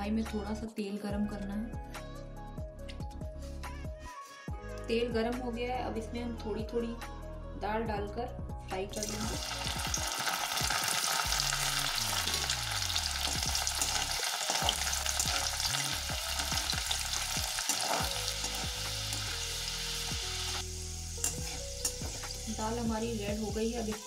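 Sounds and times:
food deep-frying in oil: 9.0 - 24.0
slotted spoon stirring: 17.2 - 19.4, 21.2 - 22.4.

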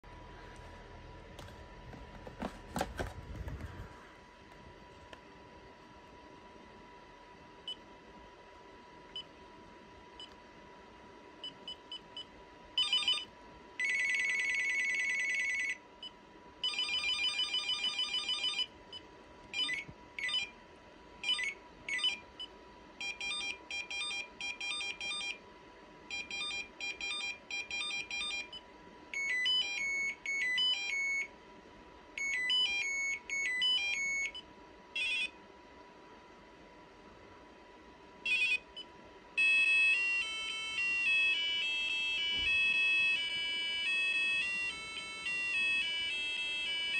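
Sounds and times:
electronic phone ringtones: 12.8 - 15.8, 16.6 - 18.7, 19.6 - 20.5, 21.2 - 22.2, 23.0 - 25.4, 26.1 - 31.3, 32.2 - 34.4, 35.0 - 35.3, 38.2 - 38.6, 39.4 - 46.9.

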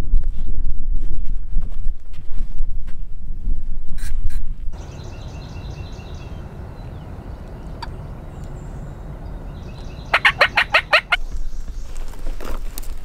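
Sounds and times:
low steady rumble: 0.0 - 12.1
turkey gobbling: 9.5 - 11.2.

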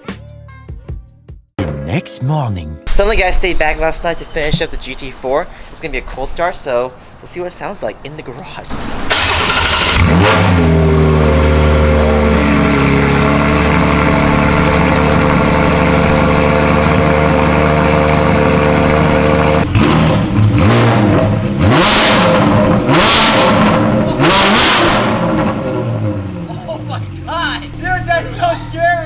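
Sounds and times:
car engine idling: 10.7 - 19.7.

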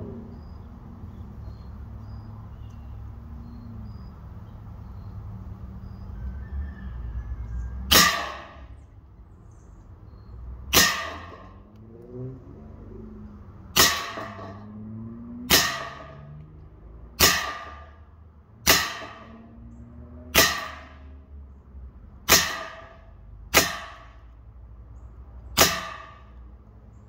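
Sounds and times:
air pistol shots: 7.9 - 8.6, 10.7 - 11.6, 13.8 - 14.6, 15.5 - 16.2, 17.2 - 18.0, 18.6 - 19.4, 20.3 - 21.0, 22.3 - 24.1, 25.6 - 26.4.

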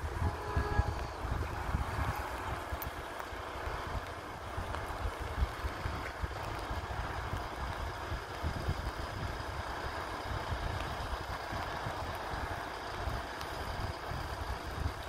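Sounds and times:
far-off hum: 0.0 - 2.8
wind buffeting microphone: 0.0 - 15.0.

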